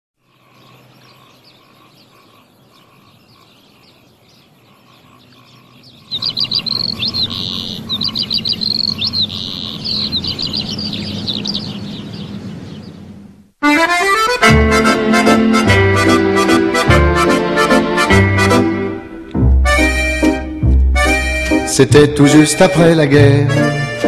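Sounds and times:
birds chirping and trilling: 0:00.2 - 0:13.5
low steady background noise: 0:00.2 - 0:13.6.

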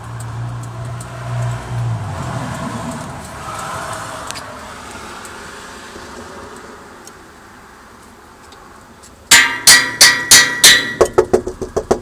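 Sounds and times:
engine hum: 0:00.0 - 0:09.3
passing road noise: 0:00.0 - 0:12.0.

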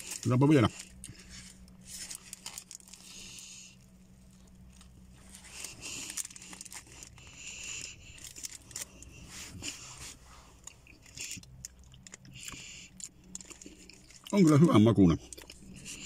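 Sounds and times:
paper wrapper crinkling: 0:00.0 - 0:03.4, 0:04.3 - 0:09.7
low steady hum: 0:00.0 - 0:16.0.

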